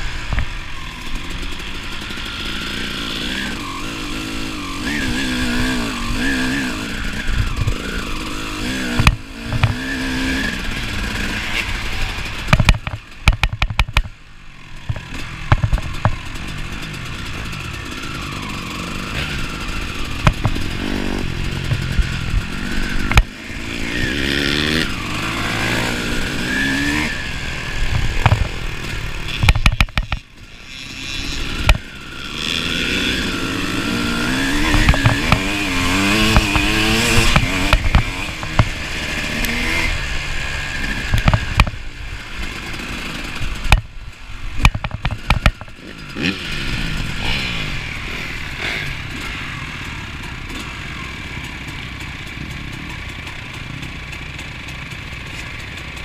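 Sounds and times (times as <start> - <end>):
two-stroke motorcycle engine: 0.0 - 56.0.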